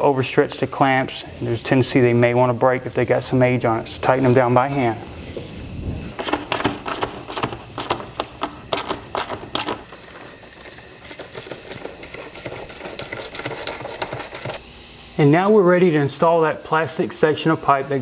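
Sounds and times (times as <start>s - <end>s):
hand ratchet clicking: 6.2s - 14.6s.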